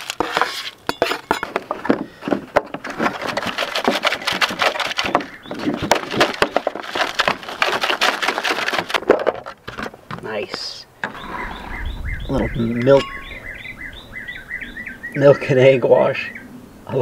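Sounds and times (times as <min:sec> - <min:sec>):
crackers rattling in plastic container: 0:02.2 - 0:10.0.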